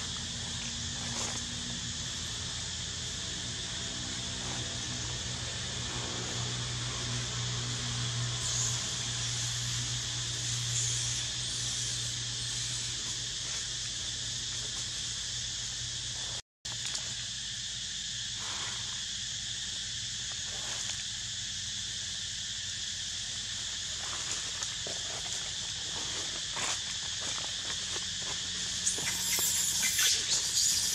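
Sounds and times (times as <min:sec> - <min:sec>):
forest insects droning: 0:00.0 - 0:30.9.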